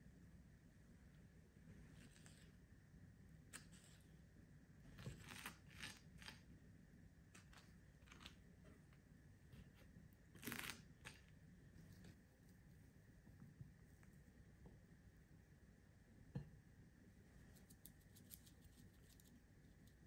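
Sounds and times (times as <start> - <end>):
knife cutting avocado: 4.9 - 6.5, 10.4 - 11.3.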